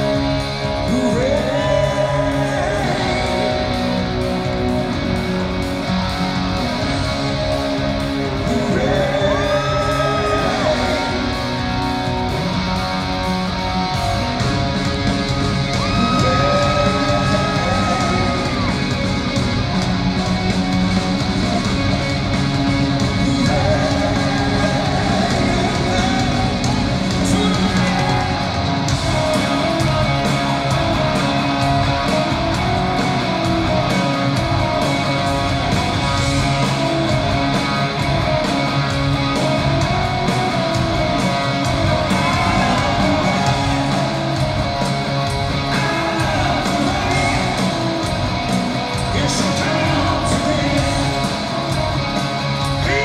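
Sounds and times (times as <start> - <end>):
rock band playing: 0.0 - 53.0
man singing: 0.8 - 3.9, 8.4 - 11.3, 16.0 - 18.7, 23.2 - 28.6, 42.1 - 44.2, 45.6 - 47.8, 49.1 - 51.3, 52.8 - 53.0.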